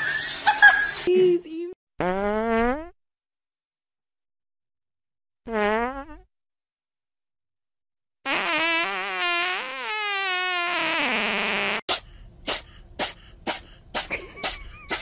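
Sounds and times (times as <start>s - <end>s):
comic fart sound effects: 2.0s - 3.0s, 5.4s - 6.3s, 8.2s - 15.0s.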